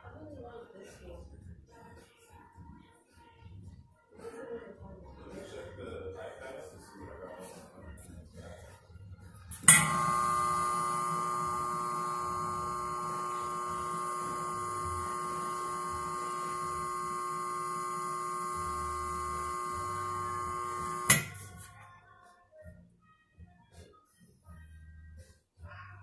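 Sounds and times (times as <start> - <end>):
steamer hissing and whistling: 9.7 - 21.4.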